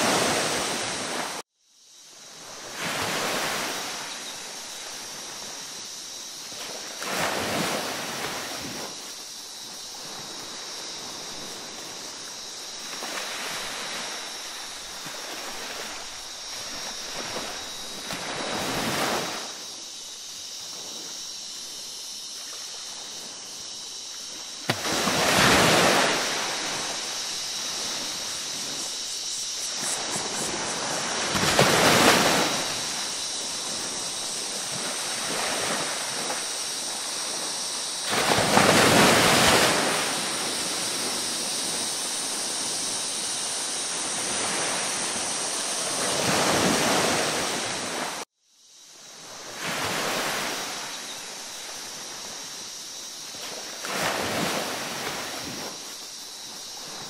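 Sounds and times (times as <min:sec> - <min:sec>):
ocean waves breaking: 0:00.0 - 0:01.4, 0:10.0 - 0:19.6, 0:24.2 - 0:48.2, 0:53.4 - 0:57.0.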